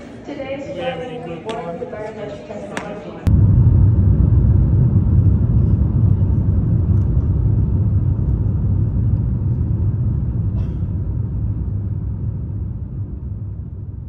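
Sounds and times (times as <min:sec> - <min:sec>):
jet cabin engine rumble: 0:03.2 - 0:14.0
rushing air: 0:03.3 - 0:14.0.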